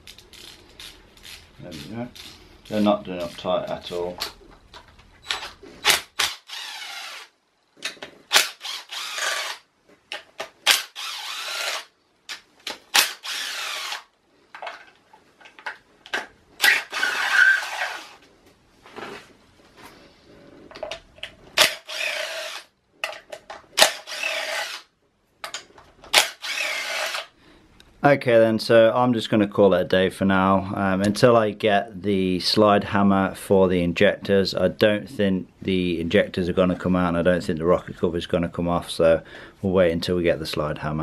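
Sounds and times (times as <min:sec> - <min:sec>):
cordless drill spinning out bolts: 0:05.8 - 0:07.3, 0:08.3 - 0:09.6, 0:10.6 - 0:11.9, 0:12.9 - 0:14.1, 0:16.6 - 0:18.2, 0:21.6 - 0:22.7, 0:23.8 - 0:24.9, 0:26.1 - 0:27.3.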